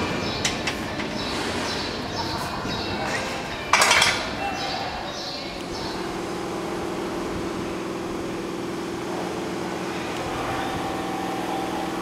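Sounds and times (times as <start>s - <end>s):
noisy background: 0.0s - 12.0s
machine hum: 5.5s - 12.0s.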